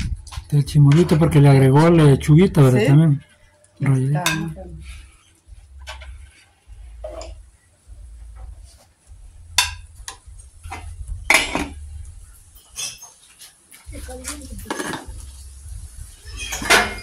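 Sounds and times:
low rumble: 0:00.0 - 0:02.8, 0:04.5 - 0:12.6, 0:13.9 - 0:17.0
utensils and dishes clinking: 0:03.3 - 0:07.4, 0:09.6 - 0:13.6, 0:14.2 - 0:17.0.

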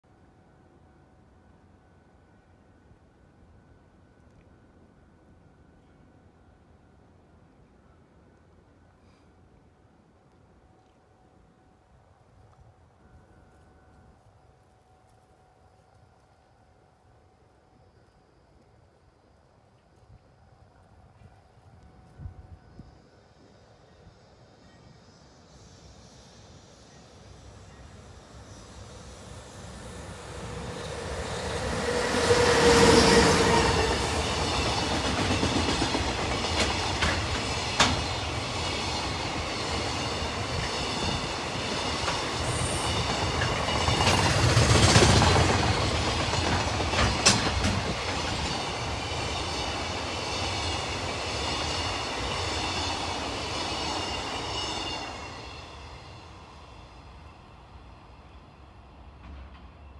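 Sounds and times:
locomotive rumbling past: 0:25.8 - 0:57.6
train wheel clicks: 0:33.6 - 0:38.2, 0:43.0 - 0:48.8.

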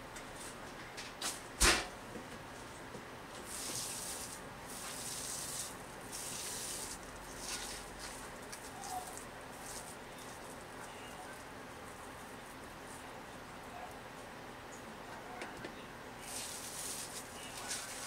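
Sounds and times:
hands kneading rice bran: 0:03.4 - 0:14.0, 0:16.2 - 0:18.0.

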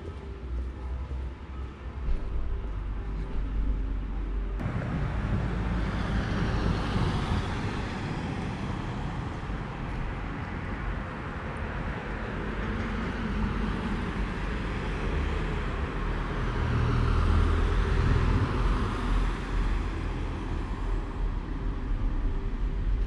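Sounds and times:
road traffic hum: 0:00.0 - 0:23.0
car passing by: 0:04.6 - 0:23.0.

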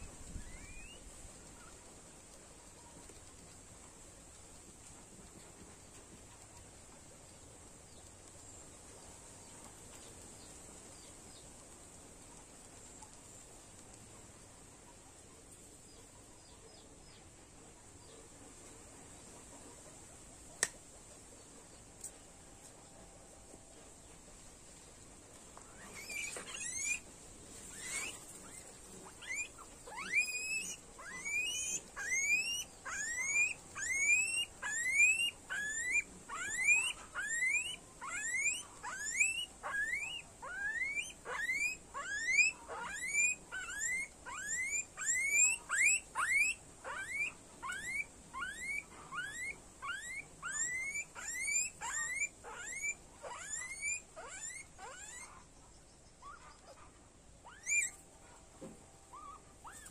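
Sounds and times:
guinea pig squealing: 0:00.0 - 0:01.9, 0:25.6 - 0:55.6, 0:56.2 - 0:58.4, 0:59.1 - 0:59.9.

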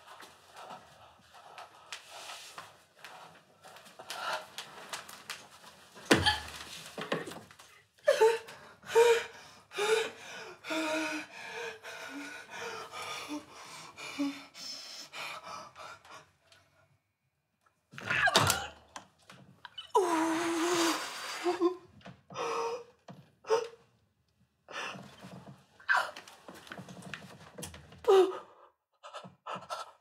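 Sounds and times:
girl panting and gasping: 0:08.0 - 0:16.3.

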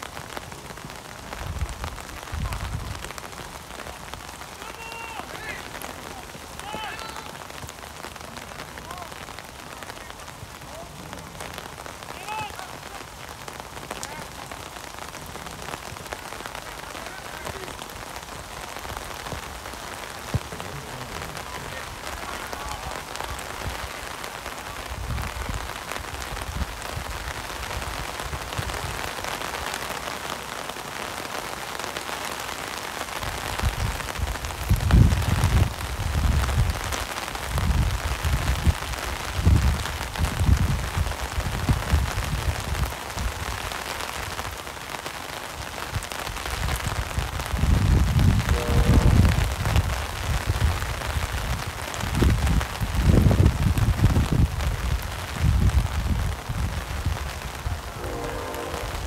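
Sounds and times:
rain hissing: 0:00.0 - 0:59.0
wind buffeting microphone: 0:24.8 - 0:29.2, 0:33.2 - 0:43.7, 0:45.9 - 0:59.0.

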